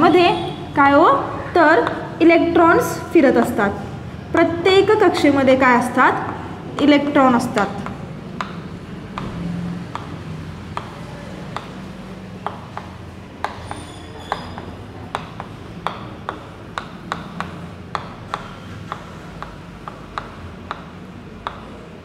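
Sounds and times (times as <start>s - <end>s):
chalk tapping on chalkboard: 1.8s - 2.1s, 3.3s - 3.6s, 6.1s - 22.0s.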